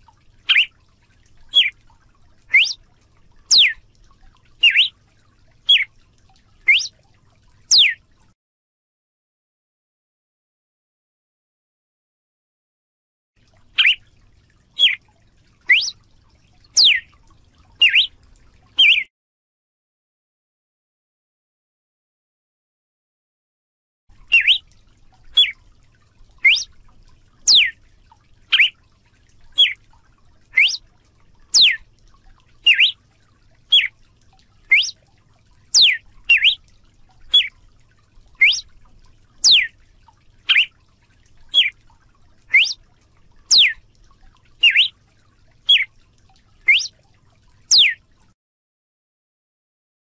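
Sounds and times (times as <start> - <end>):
bird singing whistled notes: 0.5 - 0.7, 1.5 - 1.7, 2.5 - 2.8, 3.5 - 3.8, 4.6 - 4.9, 5.7 - 5.9, 6.7 - 6.9, 7.7 - 8.0, 13.8 - 14.0, 14.8 - 15.0, 15.7 - 16.0, 16.8 - 17.1, 17.8 - 18.2, 18.8 - 19.1, 24.3 - 24.6, 25.4 - 25.6, 26.4 - 26.7, 27.5 - 27.7, 28.5 - 28.8, 29.6 - 29.8, 30.6 - 30.8, 31.5 - 31.8, 32.6 - 33.0, 33.7 - 33.9, 34.7 - 35.0, 35.7 - 36.6, 37.3 - 37.5, 38.4 - 38.7, 39.4 - 39.7, 40.5 - 40.7, 41.5 - 41.7, 42.5 - 42.8, 43.5 - 43.8, 44.6 - 44.9, 45.7 - 45.9, 46.7 - 46.9, 47.7 - 48.0.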